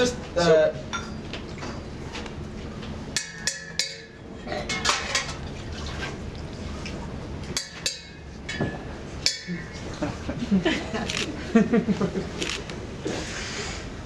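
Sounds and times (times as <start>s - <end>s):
ladle clinking against pot: 3.1s - 5.4s, 7.5s - 9.9s.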